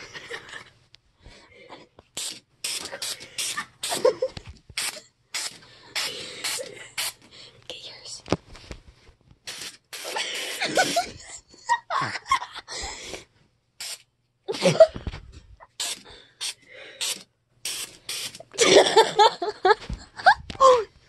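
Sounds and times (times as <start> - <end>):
aerosol spray hissing bursts: 2.2 - 4.1, 4.8 - 7.2, 9.5 - 11.1, 13.8 - 14.0, 15.8 - 18.4.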